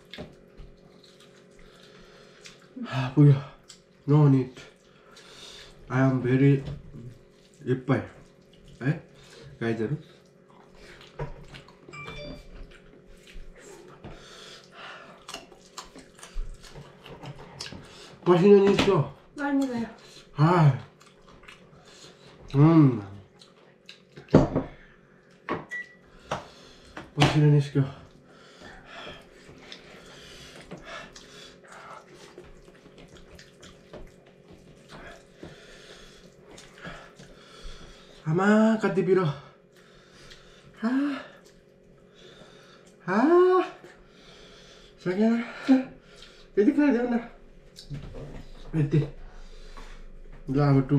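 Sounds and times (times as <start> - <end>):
wet chewing and slurping: 0.0 - 2.8, 6.9 - 11.9, 12.6 - 18.2, 19.6 - 24.3, 29.1 - 38.2, 39.7 - 42.1
faint steady hum: 0.0 - 50.9.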